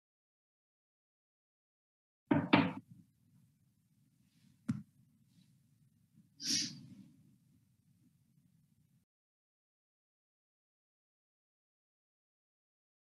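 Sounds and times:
woman breathing: 0:06.4 - 0:07.2.

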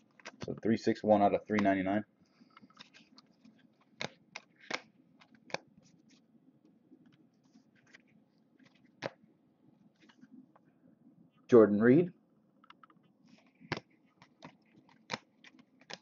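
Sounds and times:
cards sliding and rustling: 0:02.6 - 0:06.2, 0:07.1 - 0:09.2, 0:13.2 - 0:16.0
card clicks: 0:03.9 - 0:05.6, 0:12.6 - 0:16.0.

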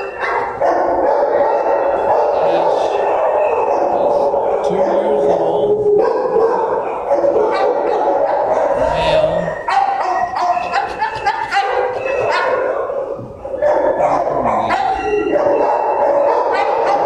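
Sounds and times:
many dogs barking and yelping: 0:00.0 - 0:17.0.

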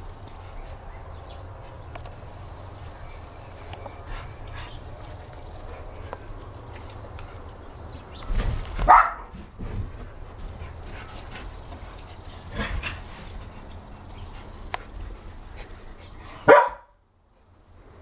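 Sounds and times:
dogs playing: 0:00.0 - 0:16.8
dog barking: 0:08.8 - 0:09.3, 0:16.5 - 0:17.0.

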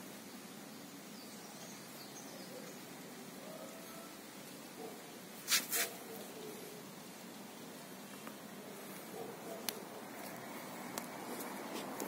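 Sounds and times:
loud hissing bursts: 0:05.2 - 0:07.4.

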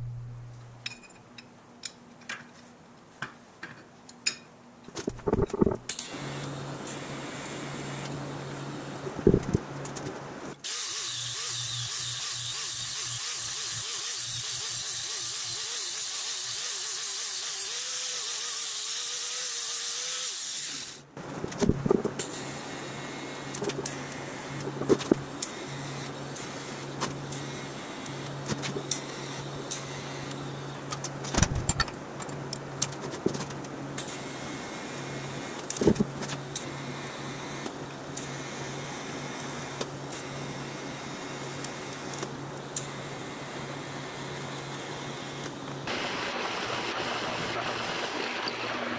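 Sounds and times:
low hum with crackles and pops: 0:00.0 - 0:10.6, 0:21.2 - 0:34.2, 0:34.8 - 0:48.9
welding arc hissing: 0:10.6 - 0:21.1.

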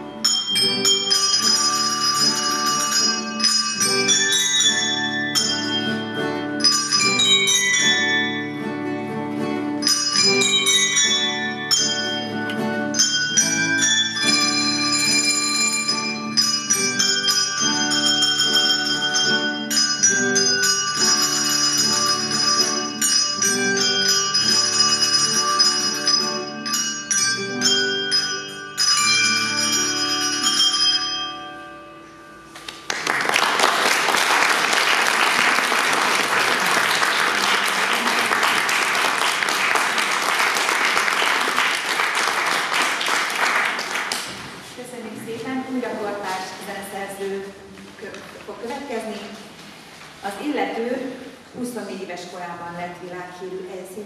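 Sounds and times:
handbell ensemble playing: 0:00.0 - 0:44.4
audience applauding: 0:32.6 - 0:44.6.

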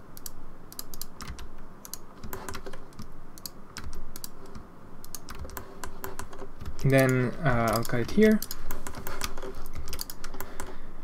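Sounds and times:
mouse clicks: 0:00.2 - 0:10.8.

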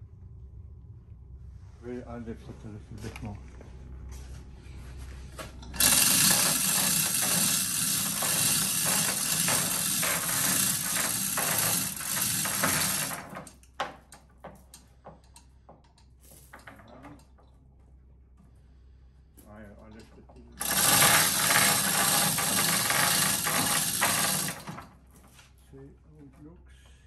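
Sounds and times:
chain clattering through hoist: 0:05.6 - 0:13.7, 0:20.4 - 0:25.2
rapid ratchet clicking: 0:05.7 - 0:13.7, 0:20.5 - 0:24.9.

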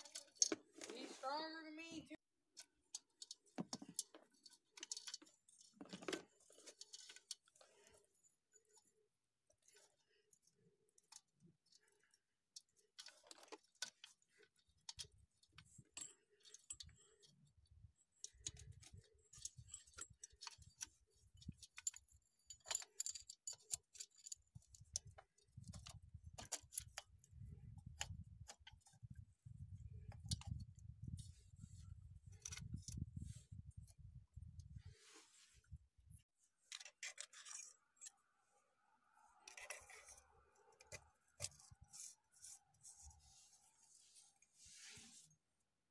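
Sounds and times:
metallic clicks of chain: 0:18.2 - 0:29.0, 0:36.7 - 0:38.3, 0:39.4 - 0:43.1.

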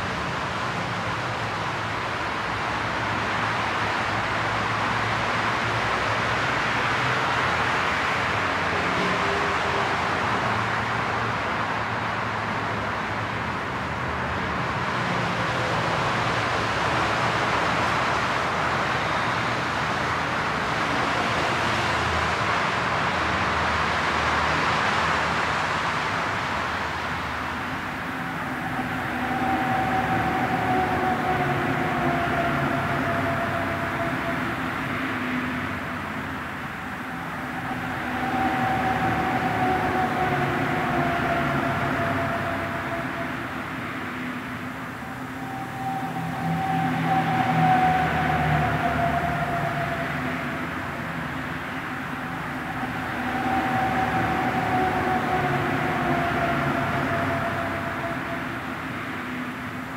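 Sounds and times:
motorway traffic rushing: 0:00.0 - 0:59.9
faint falling whine: 0:27.0 - 0:59.9.

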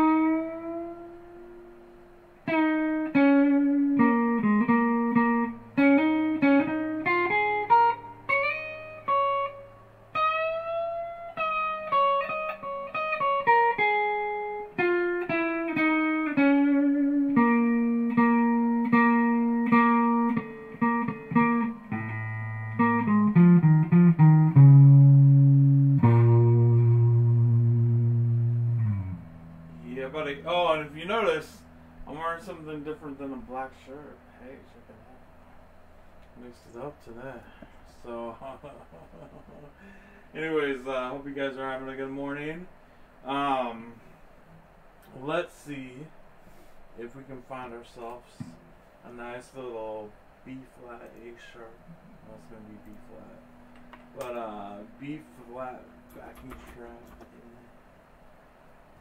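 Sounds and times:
clean electric guitar melody: 0:00.0 - 0:29.9.

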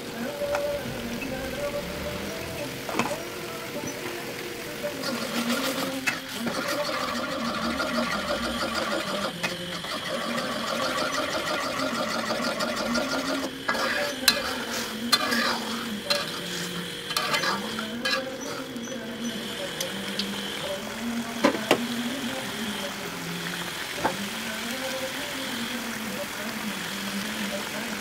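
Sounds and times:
bubbling sauce sizzling: 0:00.0 - 0:28.0
metal spatula scraping a wok: 0:05.0 - 0:19.5.

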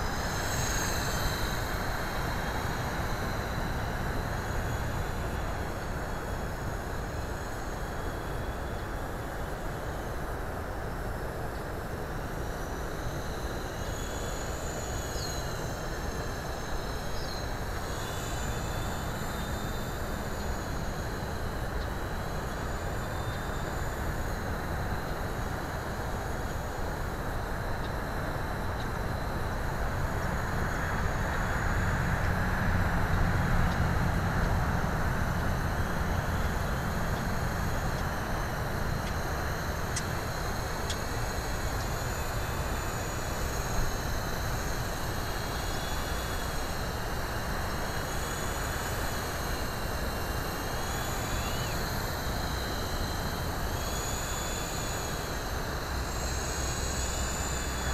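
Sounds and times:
electric helicopter rotor whine: 0:00.0 - 0:57.9.

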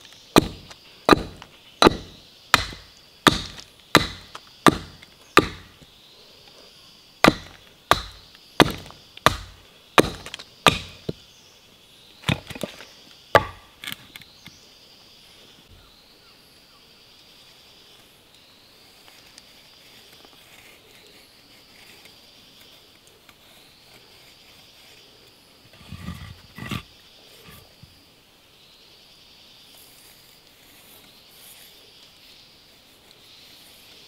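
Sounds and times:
forest insects droning: 0:00.0 - 0:34.0
wooden block knocking: 0:00.4 - 0:05.7.

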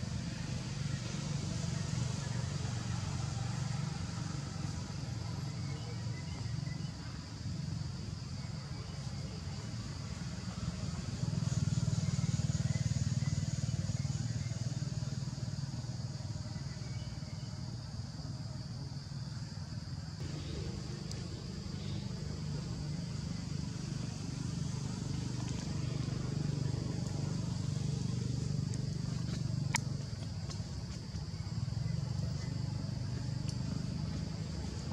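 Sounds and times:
high insect drone: 0:00.0 - 0:34.9
steady high-pitched hiss: 0:00.0 - 0:34.9
steady low hum: 0:12.3 - 0:34.9
motor engine running: 0:20.2 - 0:34.9.

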